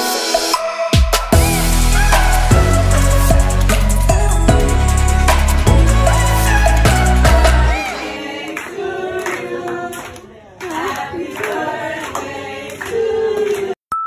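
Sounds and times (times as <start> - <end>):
group singing a celebration song: 1.4 - 13.8
hands clapping: 8.4 - 13.8.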